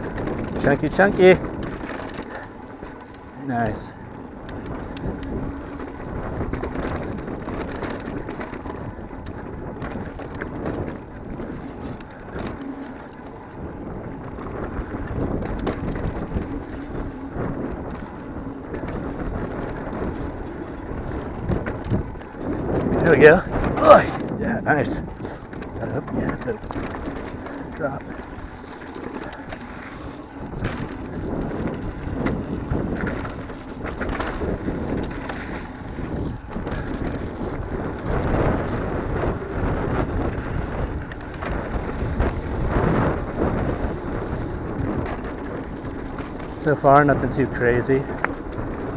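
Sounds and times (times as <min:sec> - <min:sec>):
bike knocking and rattling: 0:00.0 - 0:48.9
tyres rumbling on dirt and stones: 0:00.0 - 0:48.9
wind rushing over microphone: 0:00.0 - 0:48.9.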